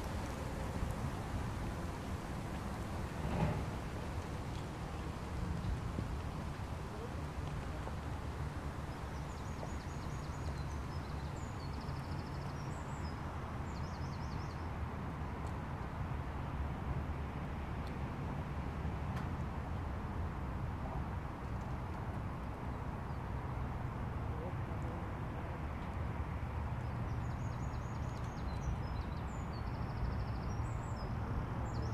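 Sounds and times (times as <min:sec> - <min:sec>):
songbirds chirping and trilling: 0:26.8 - 0:31.9.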